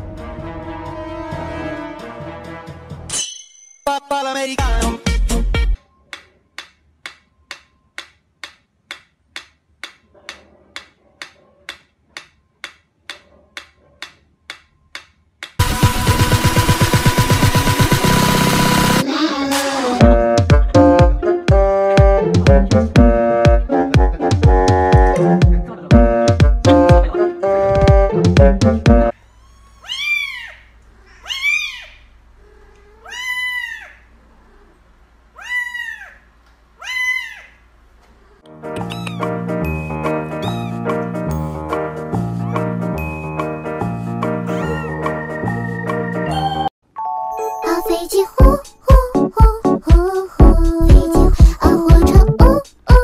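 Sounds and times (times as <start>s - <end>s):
kitten meowing: 29.4s - 34.0s, 38.8s - 39.3s, 40.4s - 40.8s, 44.5s - 45.0s.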